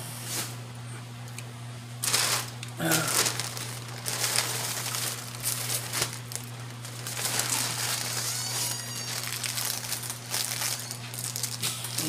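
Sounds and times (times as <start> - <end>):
plastic bags crinkling: 2.0 - 12.0
brief high squeaks: 8.2 - 9.2.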